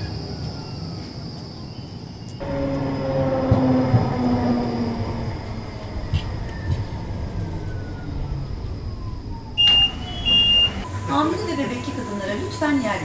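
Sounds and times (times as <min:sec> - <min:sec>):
tram wheels rumbling on rails: 0:00.0 - 0:13.0
tram whine falling in pitch: 0:01.7 - 0:13.0
loud high beep: 0:09.6 - 0:11.1.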